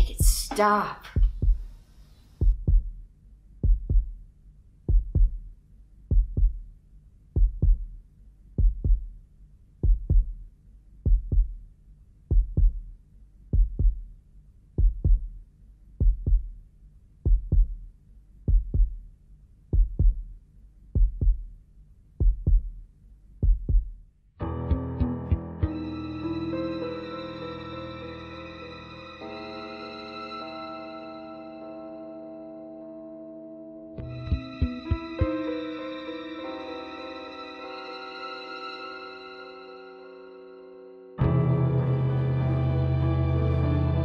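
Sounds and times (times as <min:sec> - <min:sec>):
heartbeat thumps: 0:00.0 - 0:01.8, 0:02.4 - 0:04.2, 0:04.8 - 0:09.2, 0:09.8 - 0:16.6, 0:17.2 - 0:19.1, 0:19.7 - 0:22.8, 0:23.4 - 0:24.0, 0:34.2 - 0:35.3.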